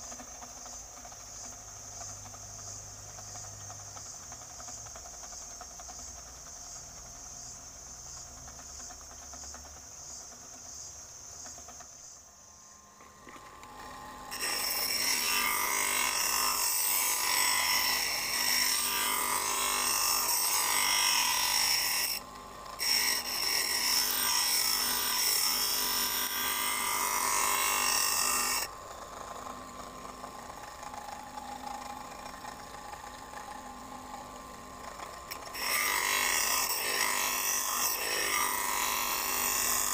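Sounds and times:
bench grinder grinding blade: 0:12.6 - 0:39.9.

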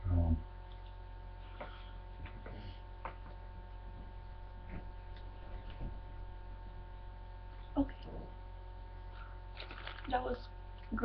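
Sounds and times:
electrical hum: 0:00.0 - 0:11.0
faint clicks and rustles: 0:00.6 - 0:06.4, 0:09.1 - 0:11.0.

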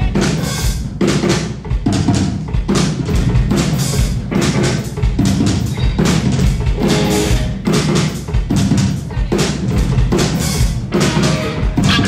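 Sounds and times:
bass guitar: 0:00.0 - 0:12.0
drum kit beat: 0:00.0 - 0:12.0
distorted electric guitars: 0:05.6 - 0:08.1, 0:10.5 - 0:12.0.

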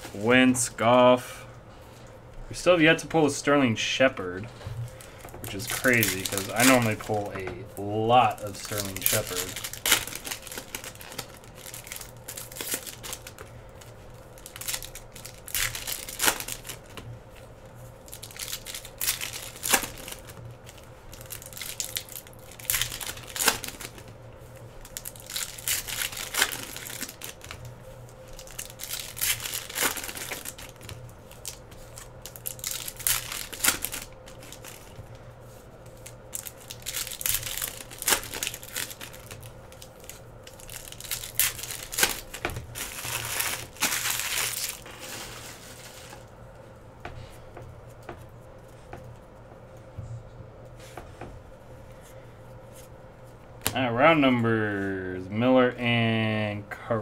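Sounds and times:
faint steady hum: 0:00.0 - 0:57.0
wrappers tearing and crinkling: 0:04.9 - 0:46.3.

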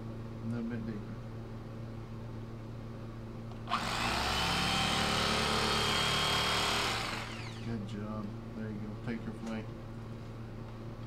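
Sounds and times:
electric knife motor buzzing: 0:03.7 - 0:07.8.

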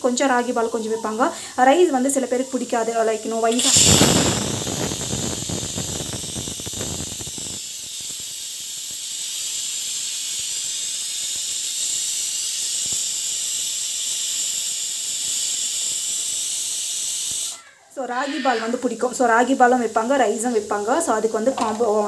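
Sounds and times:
pressure cooker whistling: 0:02.5 - 0:17.6.

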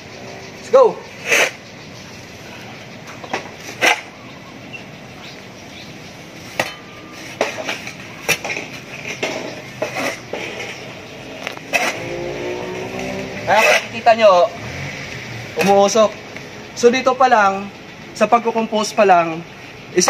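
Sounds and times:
metal shovel scraping and knocking: 0:03.2 - 0:04.2, 0:06.5 - 0:14.2.

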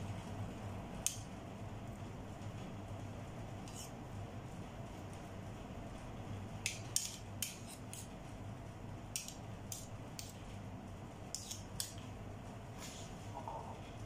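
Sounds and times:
spoon scraping on steel tray: 0:03.6 - 0:04.0, 0:07.0 - 0:08.1, 0:11.3 - 0:11.9.

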